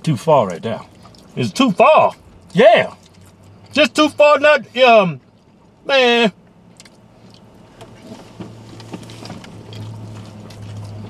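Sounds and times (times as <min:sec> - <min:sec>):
low hum inside car: 0:00.0 - 0:11.0
people chewing: 0:00.4 - 0:03.8, 0:09.0 - 0:11.0.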